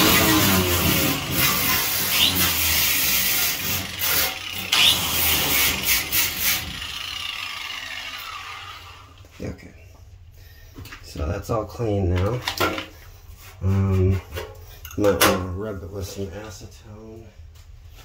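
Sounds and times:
grinder motor winding down: 0:00.0 - 0:09.2
angle grinder grinding metal: 0:00.0 - 0:09.3.

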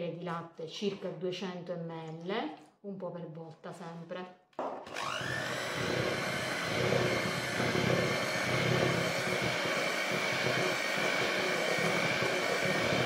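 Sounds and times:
hand mixer motor whine: 0:04.8 - 0:13.0
beaters churning batter: 0:04.9 - 0:13.0.

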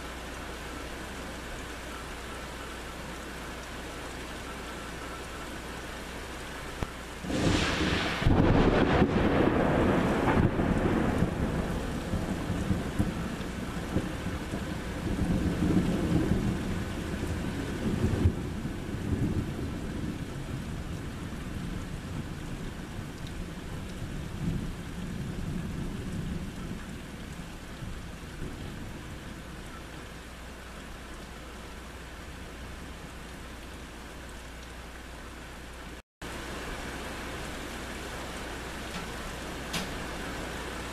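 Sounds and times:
steady rain: 0:00.0 - 0:40.9
thunder rumbling: 0:07.2 - 0:30.0.

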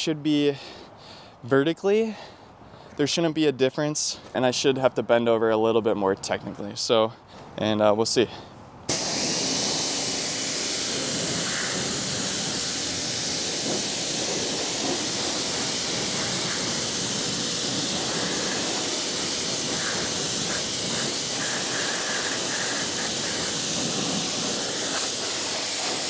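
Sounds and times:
pressure washer jet hissing: 0:08.9 - 0:26.0.

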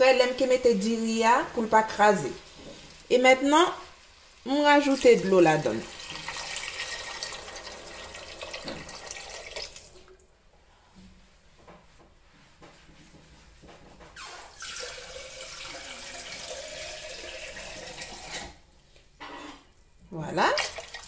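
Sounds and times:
water running into a pot: 0:04.1 - 0:10.2, 0:14.4 - 0:18.6, 0:20.6 - 0:21.0.

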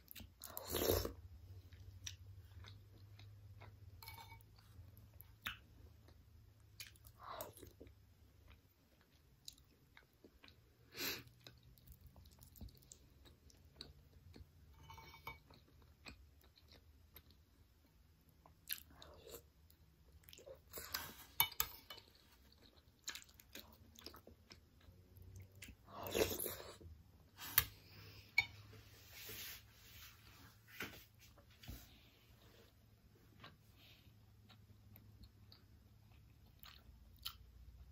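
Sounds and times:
chewing sticky rice: 0:15.2 - 0:27.7.

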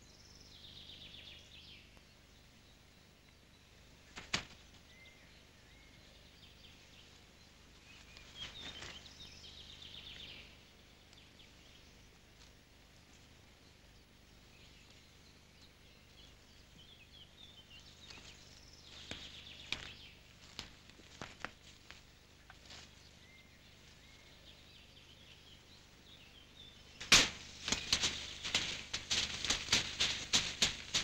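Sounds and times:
leaves and twigs trampled: 0:04.1 - 0:05.0, 0:07.0 - 0:10.4, 0:17.8 - 0:24.1, 0:26.9 - 0:31.0.

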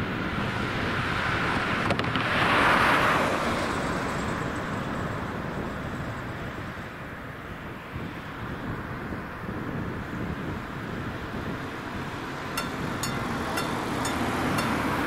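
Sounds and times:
car passing by: 0:00.3 - 0:06.2
wheels knocking on rails: 0:12.4 - 0:15.0.

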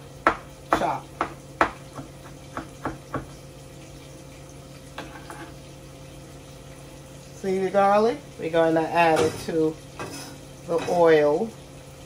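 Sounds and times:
knife chopping on cutting board: 0:00.2 - 0:03.4.

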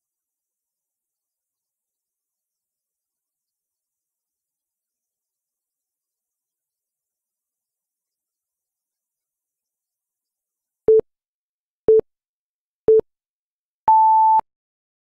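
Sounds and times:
countdown timer beeps: 0:13.9 - 0:14.4.

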